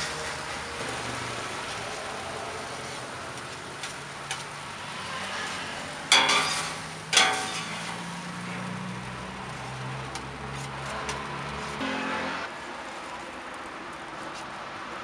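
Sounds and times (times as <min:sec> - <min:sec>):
food sizzling on a griddle: 0:00.0 - 0:11.8
metal spatulas scraping: 0:05.4 - 0:08.0.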